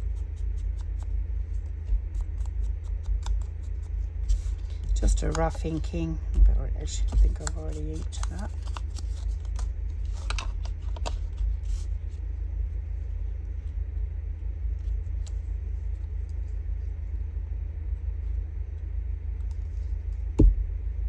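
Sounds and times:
low background rumble: 0:00.0 - 0:21.0
paper strips clicking: 0:02.1 - 0:03.9.

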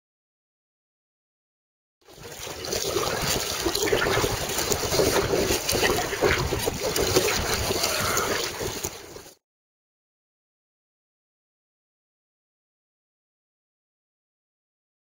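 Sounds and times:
paddle splashing water: 0:02.0 - 0:09.4
wind buffeting microphone: 0:02.6 - 0:09.3.

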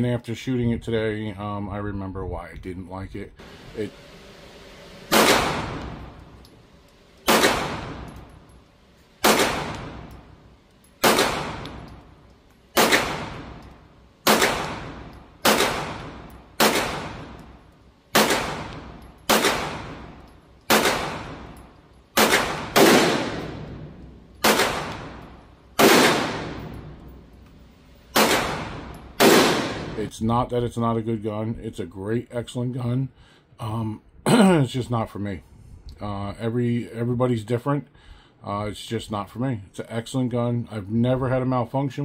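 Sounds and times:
pistol shots indoors: 0:04.8 - 0:30.0.

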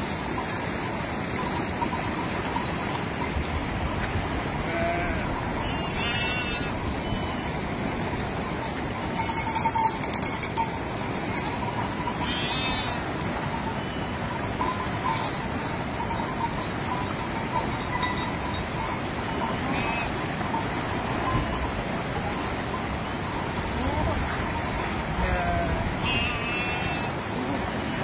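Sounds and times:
river rushing: 0:00.0 - 0:28.0
sheep bleating: 0:04.6 - 0:06.8, 0:12.2 - 0:13.0, 0:19.6 - 0:20.2, 0:25.2 - 0:27.2.

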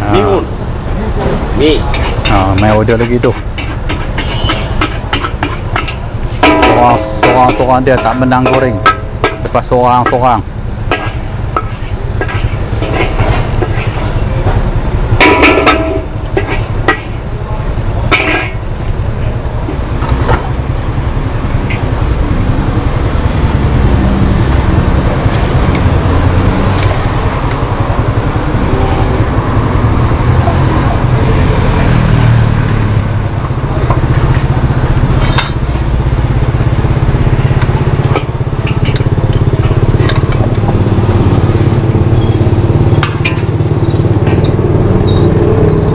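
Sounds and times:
gas wok burner roaring: 0:00.0 - 0:45.9
metal spatula scraping wok: 0:01.8 - 0:17.3, 0:18.0 - 0:18.9, 0:38.0 - 0:45.9.

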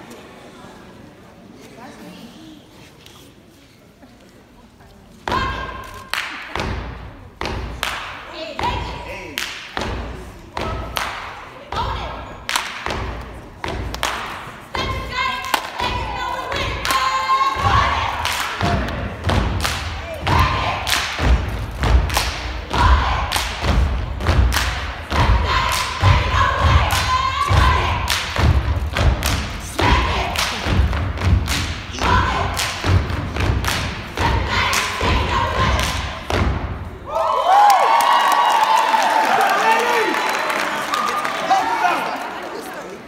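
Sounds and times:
hand claps: 0:05.9 - 0:06.7, 0:07.7 - 0:08.2, 0:09.2 - 0:10.0, 0:10.8 - 0:11.4, 0:12.4 - 0:13.0, 0:13.6 - 0:14.6, 0:20.8 - 0:22.6, 0:23.3 - 0:24.9, 0:28.0 - 0:29.5, 0:32.5 - 0:35.1
voices chanting: 0:14.8 - 0:21.5, 0:22.3 - 0:36.5.

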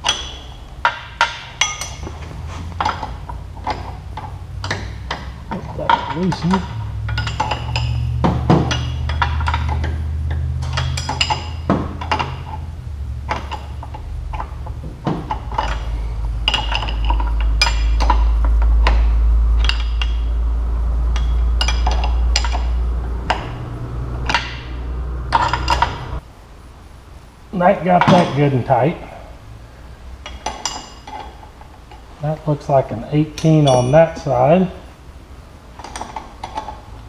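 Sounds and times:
wrenches clinking on metal fittings: 0:00.0 - 0:02.1, 0:02.8 - 0:12.6, 0:15.1 - 0:19.0, 0:33.3 - 0:34.3.

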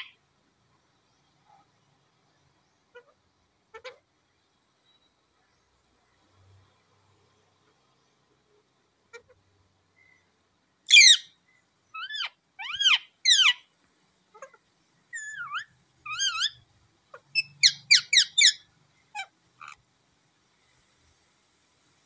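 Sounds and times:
parakeet chirping: 0:10.9 - 0:11.3, 0:11.9 - 0:13.6, 0:14.4 - 0:19.8.

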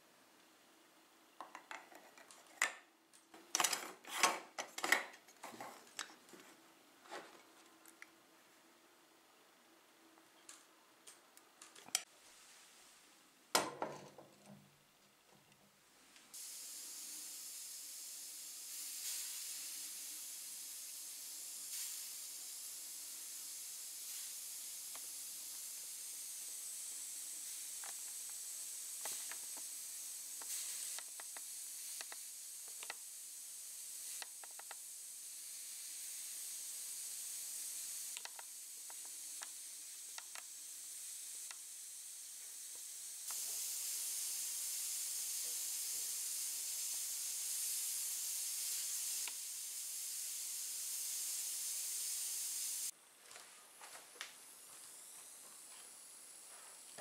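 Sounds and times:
moka pot steam hissing: 0:16.0 - 0:53.0, 0:54.2 - 0:57.0.

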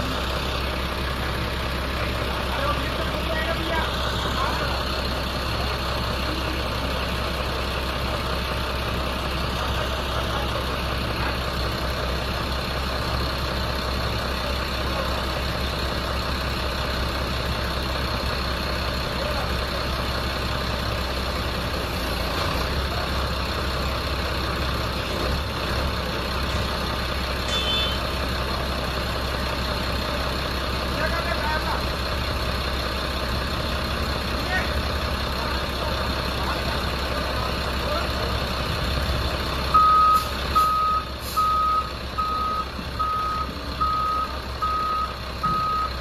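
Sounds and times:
heavy diesel engine idling: 0:00.0 - 0:46.0.

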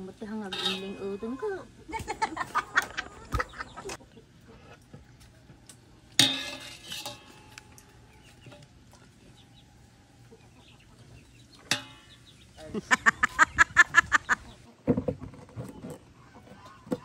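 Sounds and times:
metal spoon clinking on leaves: 0:00.5 - 0:01.3, 0:06.2 - 0:07.8.

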